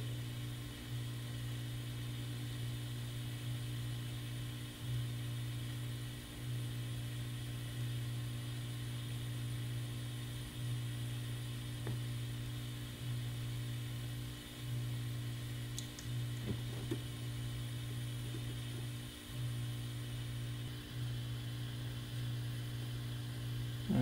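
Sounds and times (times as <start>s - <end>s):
low electrical hum: 0.0s - 24.0s
soldering iron ticks and clicks: 15.7s - 17.1s.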